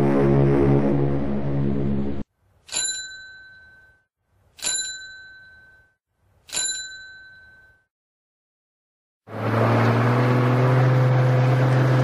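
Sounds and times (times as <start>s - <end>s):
bicycle bell ringing: 2.7s - 7.9s.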